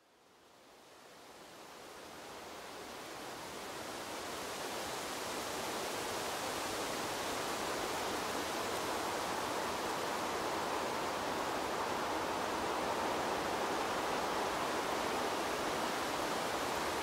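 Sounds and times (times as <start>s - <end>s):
wind rushing through leaves: 0.1s - 17.0s.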